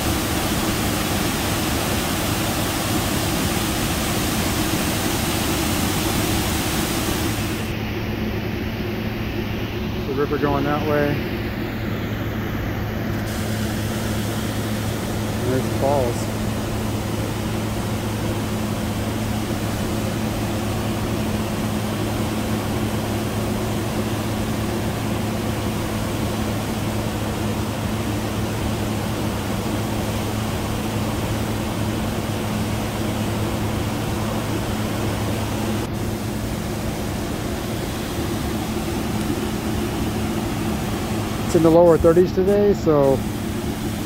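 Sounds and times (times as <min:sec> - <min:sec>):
waterfall rushing: 0:00.0 - 0:07.7
low hum: 0:00.0 - 0:44.0.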